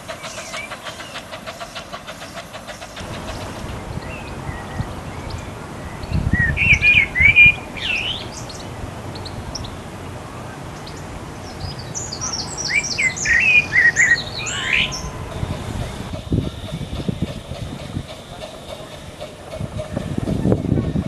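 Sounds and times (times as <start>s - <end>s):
songbird singing: 0.0s - 21.0s.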